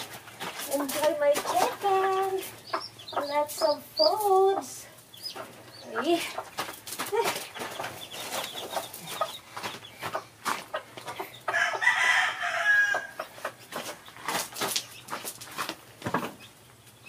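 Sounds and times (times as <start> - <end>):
chickens clucking: 0.0 - 17.0
rooster crowing: 11.5 - 13.2.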